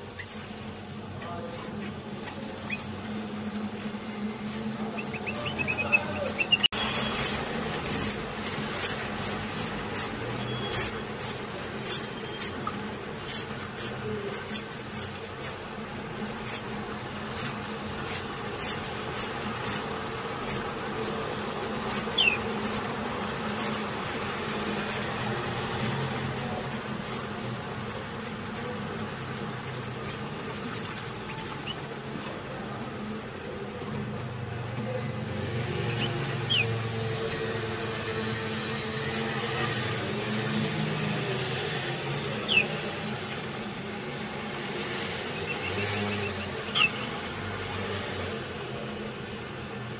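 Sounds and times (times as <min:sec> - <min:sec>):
nestlings cheeping: 0:00.0 - 0:47.3.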